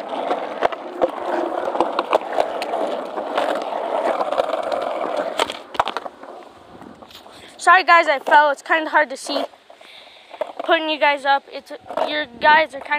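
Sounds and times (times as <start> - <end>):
skateboard clacks: 0.0 - 7.1, 10.3 - 12.9
skateboard wheels rolling on concrete: 0.0 - 12.9.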